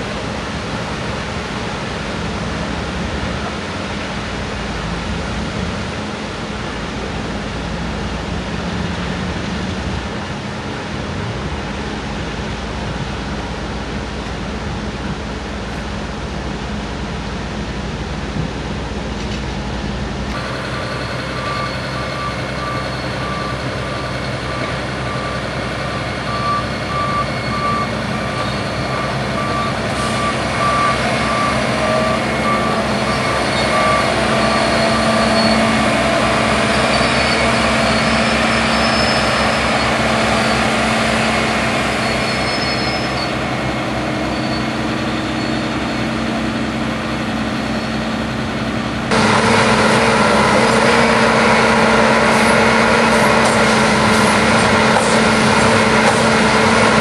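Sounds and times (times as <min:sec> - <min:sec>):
excavator diesel engine running: 0:00.0 - 0:57.0
reversing alarm beeping: 0:20.4 - 0:43.3.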